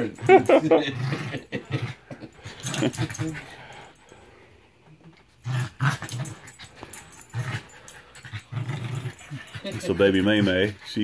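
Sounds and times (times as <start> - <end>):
small dog growling in play: 5.4 - 10.5.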